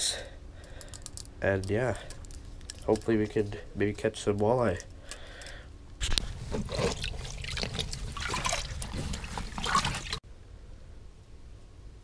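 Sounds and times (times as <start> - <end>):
water splashing and trickling: 6.3 - 10.2.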